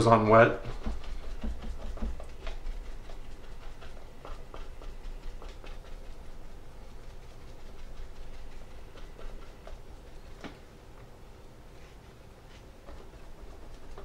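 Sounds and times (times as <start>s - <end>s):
sponge dabbing paint on wood: 0.1s - 14.0s
sponge blotting on paper: 0.3s - 10.6s.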